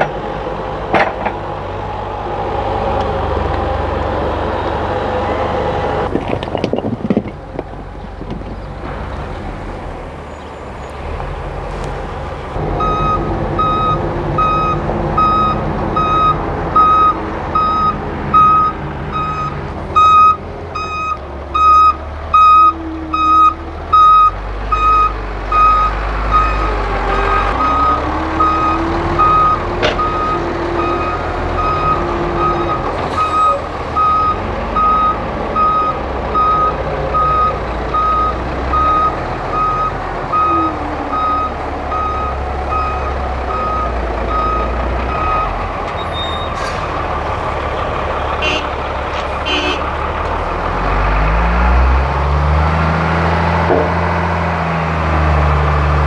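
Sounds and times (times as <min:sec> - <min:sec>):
diesel truck engine running: 0:00.0 - 0:56.0
reversing alarm beeping: 0:12.8 - 0:46.6.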